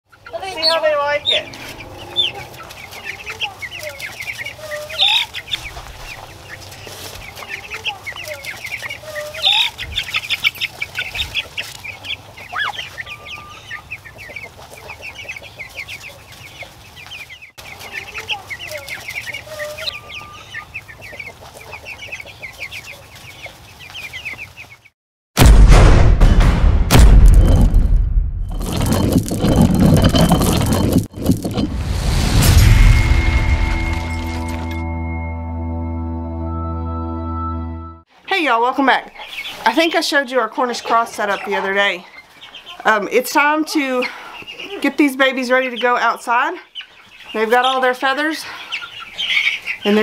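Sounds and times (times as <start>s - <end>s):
chicks peeping: 0.1s - 24.9s, 38.3s - 50.0s.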